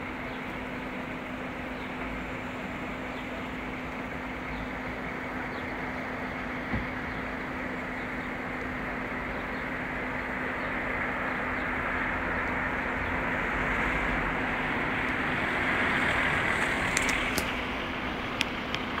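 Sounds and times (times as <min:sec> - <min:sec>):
road traffic rushing: 0:00.0 - 0:19.0
sharp clicks: 0:16.9 - 0:17.6.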